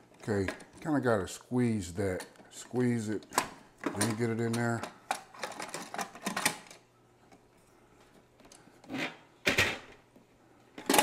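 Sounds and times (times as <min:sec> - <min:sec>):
plastic parts clicking and snapping: 0:03.2 - 0:07.4, 0:10.8 - 0:11.0.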